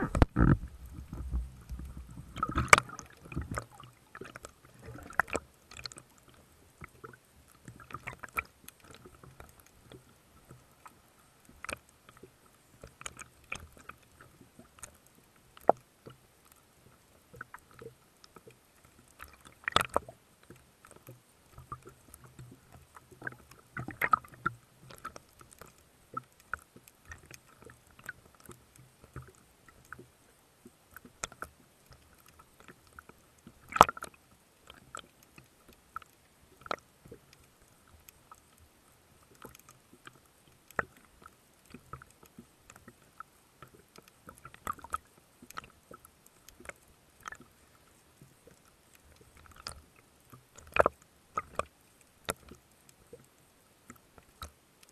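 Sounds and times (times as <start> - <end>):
underwater clicks and knocks: 0.0 - 10.6, 19.2 - 30.1, 31.0 - 37.4, 50.6 - 51.7.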